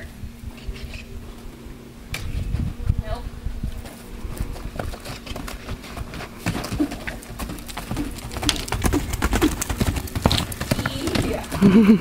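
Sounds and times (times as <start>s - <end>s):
horse hoofbeats on dirt: 3.8s - 12.0s.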